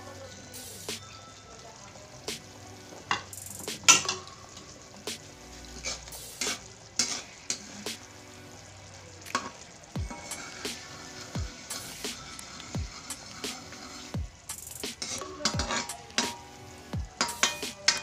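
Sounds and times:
food sizzling in sauce: 0.0s - 18.0s
metal utensil scraping in wok: 3.0s - 4.8s, 5.6s - 7.8s, 9.3s - 14.2s, 14.9s - 18.0s.

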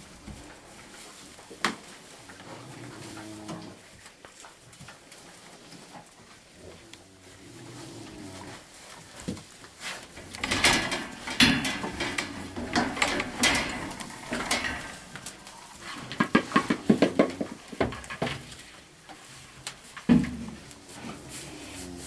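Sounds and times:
animal rustling in wood shavings: 0.0s - 10.4s, 18.4s - 22.0s.

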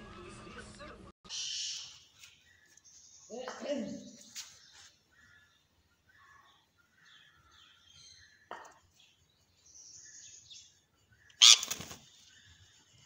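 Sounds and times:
parakeet chirping and chattering: 9.8s - 12.0s.

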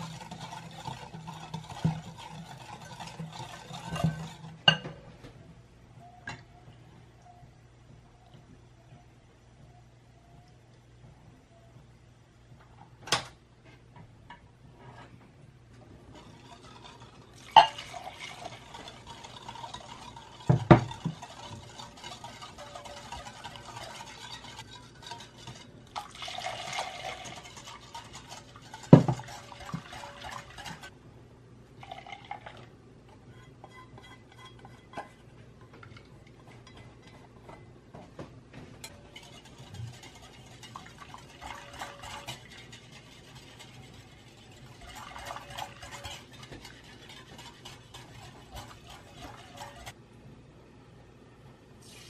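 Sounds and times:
wire whisk stirring: 0.0s - 4.8s, 16.0s - 31.0s, 33.1s - 37.7s, 38.8s - 50.0s
milk pouring into a bowl: 25.9s - 30.9s, 31.8s - 32.8s.

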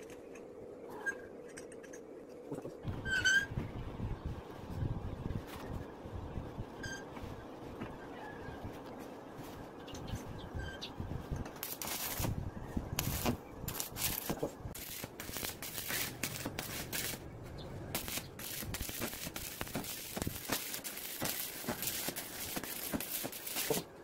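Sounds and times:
welding arc crackling: 11.4s - 24.0s.

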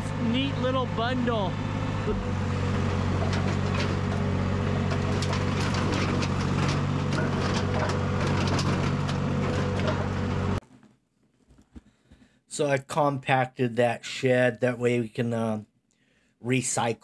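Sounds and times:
skid steer engine running: 0.0s - 10.6s
sheet metal clanking and crunching: 3.0s - 10.4s.

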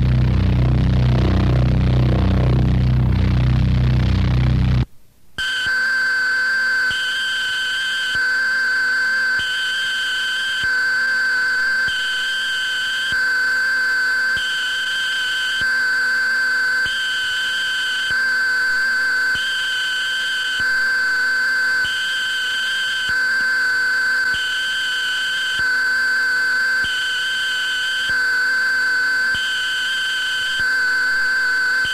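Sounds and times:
steady high electronic tone: 0.0s - 4.8s
higher tone switching on and off: 0.0s - 4.9s.

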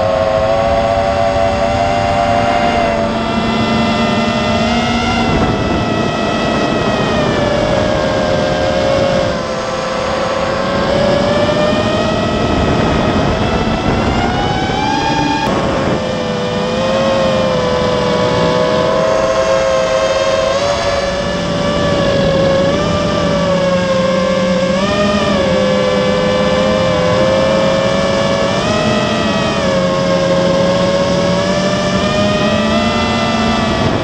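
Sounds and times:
drone motors whining: 0.0s - 34.0s.

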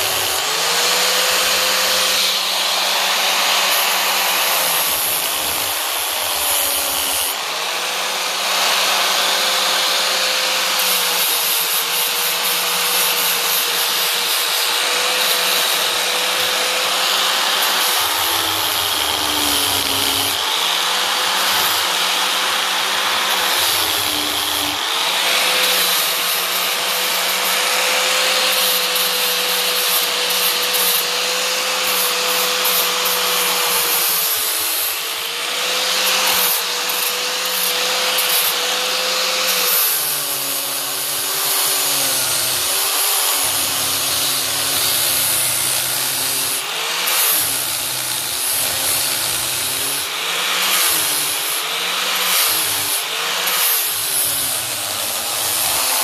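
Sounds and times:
angle grinder grinding wood: 0.0s - 56.0s.

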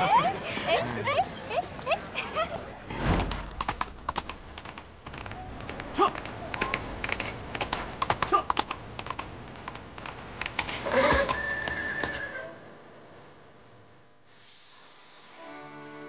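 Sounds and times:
hooves galloping on stone: 3.6s - 12.2s.

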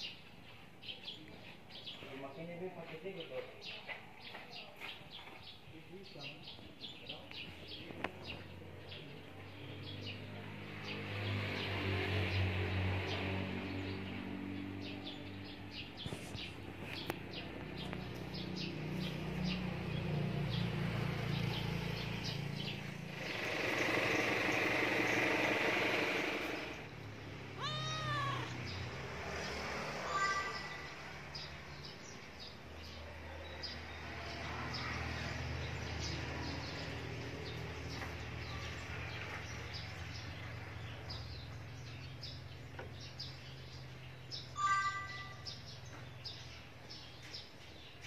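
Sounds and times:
cat meowing: 27.6s - 28.6s.

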